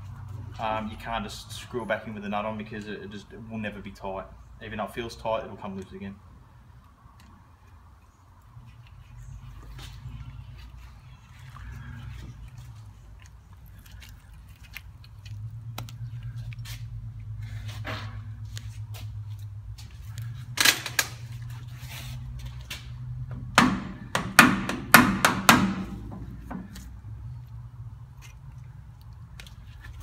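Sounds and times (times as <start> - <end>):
steel hammer striking metal studs: 23.5 - 26.7.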